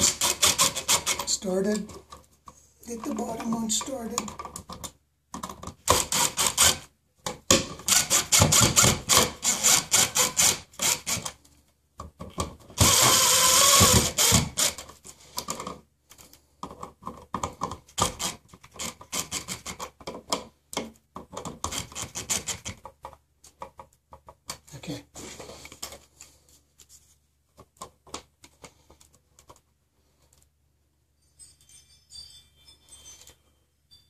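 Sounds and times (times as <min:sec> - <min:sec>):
cordless power driver driving screws: 0:12.8 - 0:14.9.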